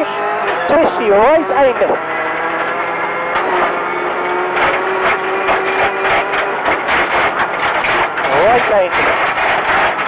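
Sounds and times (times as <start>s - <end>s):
car engine pulling steady revs: 0.0s - 10.0s
gravel rattling against car underside: 0.3s - 10.0s.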